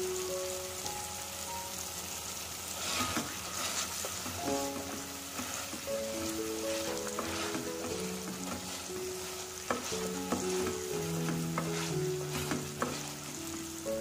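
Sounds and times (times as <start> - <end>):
food sizzling in a pan: 0.0 - 14.0
soft background music: 0.0 - 14.0
metal spatula scraping pan: 2.8 - 13.6.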